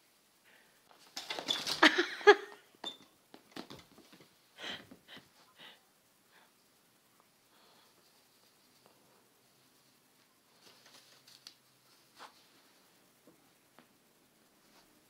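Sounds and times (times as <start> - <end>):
kittens scuffling and scratching: 0.9 - 2.0, 8.0 - 12.8.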